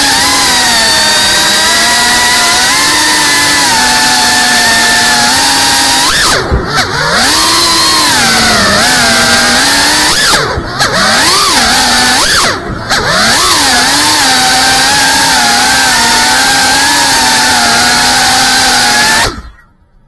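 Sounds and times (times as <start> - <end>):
drone motors whining: 0.0 - 19.8.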